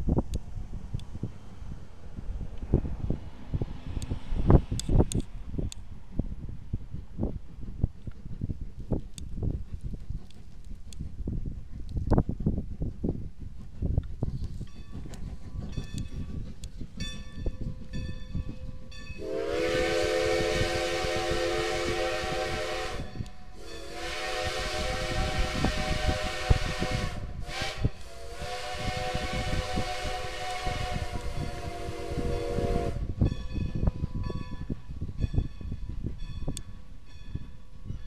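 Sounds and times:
steam locomotive whistle blasts: 0:19.2 - 0:34.8.

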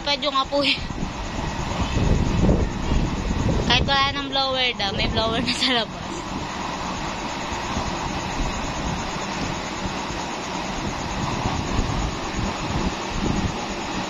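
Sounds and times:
strong wind gusting over microphone: 0:00.0 - 0:14.0.

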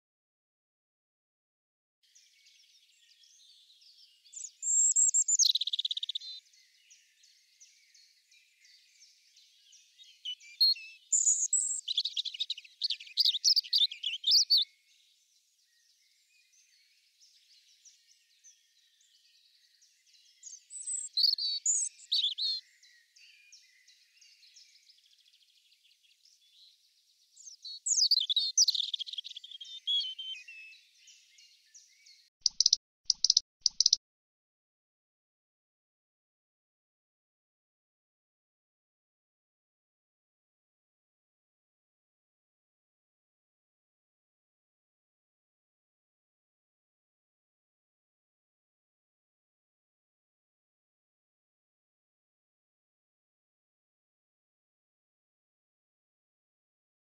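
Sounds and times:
robin singing: 0:02.0 - 0:34.0.

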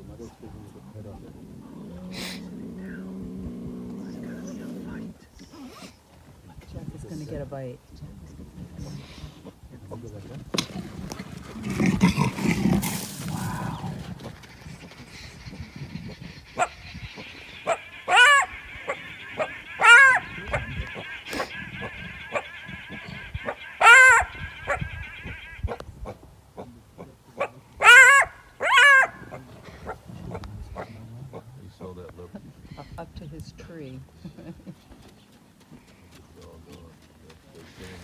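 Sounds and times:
big cats snarling: 0:01.3 - 0:05.1, 0:11.4 - 0:16.8
cheetah chirping: 0:13.8 - 0:25.8
high buzz: 0:14.4 - 0:25.8.

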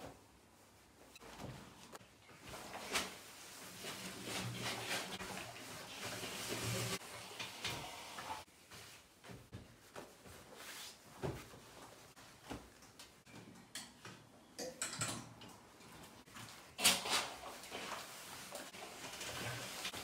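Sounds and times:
cloth rustling: 0:08.5 - 0:13.2.

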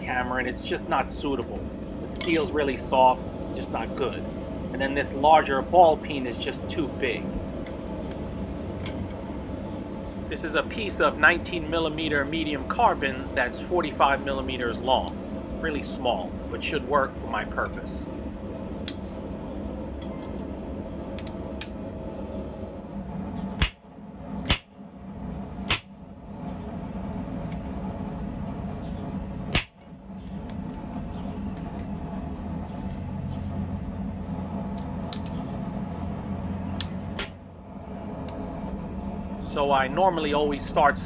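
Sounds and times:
steady low hum: 0:00.0 - 0:41.0
hammer striking metal punch: 0:23.6 - 0:24.8, 0:25.7 - 0:26.1, 0:29.5 - 0:30.0, 0:36.8 - 0:37.6.

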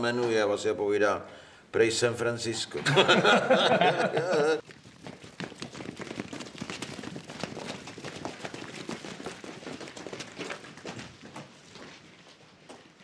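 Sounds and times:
many feet running on hard ground: 0:04.6 - 0:13.0.

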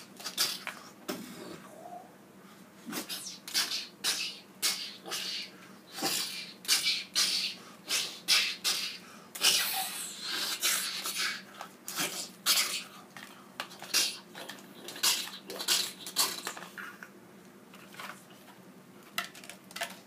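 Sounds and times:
person making whooshing mouth sounds: 0:00.0 - 0:02.1, 0:02.8 - 0:12.9.

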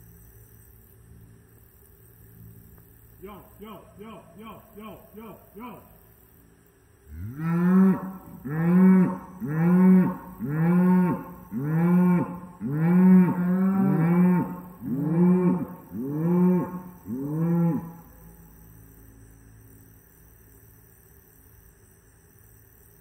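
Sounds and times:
cow mooing: 0:07.1 - 0:18.1.

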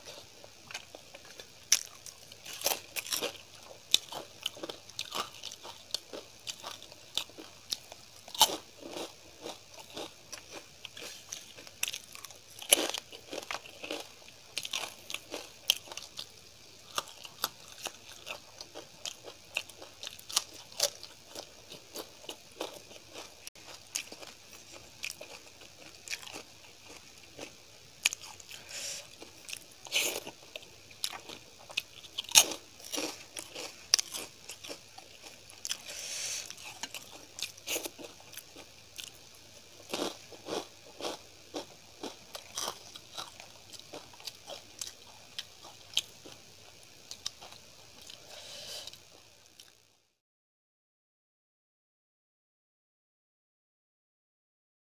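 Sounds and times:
chewing with mouth clicks: 0:16.9 - 0:39.2.

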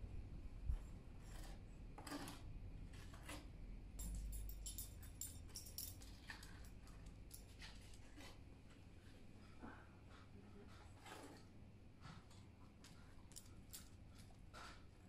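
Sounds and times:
light jingling clatter: 0:04.0 - 0:07.7, 0:13.3 - 0:14.4.

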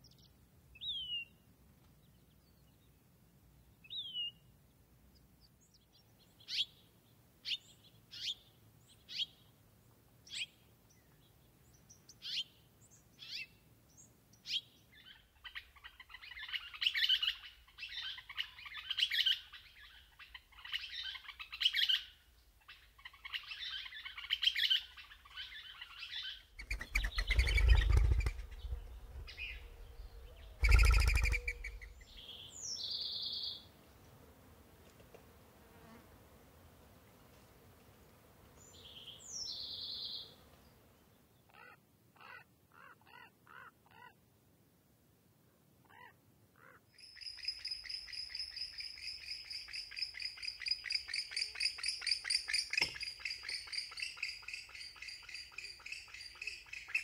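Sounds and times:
birds chirping and chattering: 0:22.6 - 0:33.6
harsh bird calls: 0:22.8 - 0:33.6.

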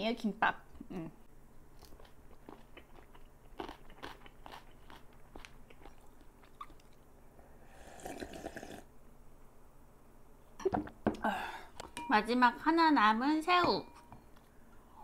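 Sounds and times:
close chewing with crunching: 0:01.7 - 0:07.1
slurping broth from bowl: 0:07.7 - 0:08.8.

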